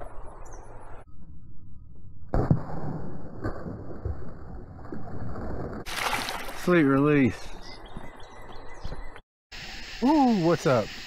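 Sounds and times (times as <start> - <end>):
fish splashing into water: 5.8 - 6.8.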